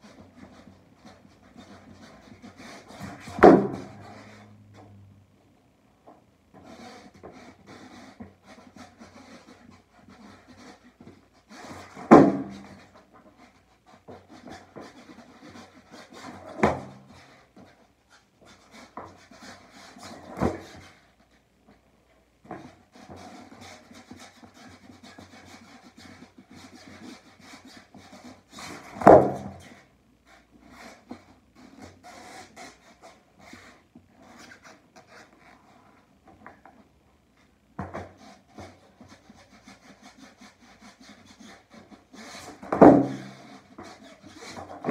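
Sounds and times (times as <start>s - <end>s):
skateboard wheels rolling on carpet: 0.0s - 44.9s
skateboard deck thudding: 3.0s - 4.2s, 11.9s - 12.7s, 16.3s - 17.0s, 28.8s - 29.6s, 42.6s - 43.5s.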